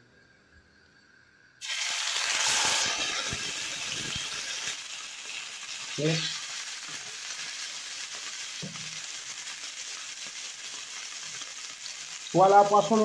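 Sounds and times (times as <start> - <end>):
fish sizzling in oil: 1.6 - 13.0
spitting fat crackle: 1.6 - 13.0.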